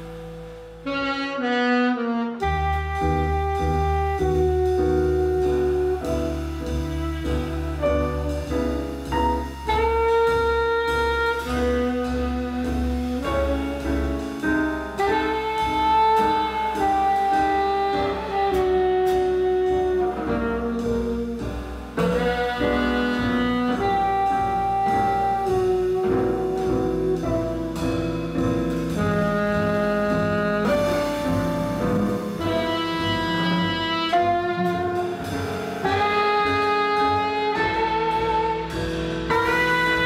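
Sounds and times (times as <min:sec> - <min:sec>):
jazz band accompaniment: 0:00.0 - 0:40.0
alto saxophone melody: 0:00.8 - 0:40.0.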